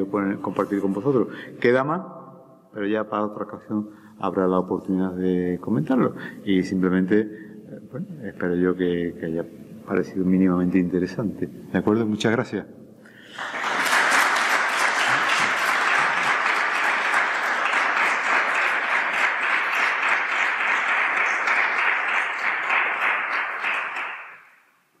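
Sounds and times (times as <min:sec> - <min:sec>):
audience applauding: 0:13.3 - 0:24.6.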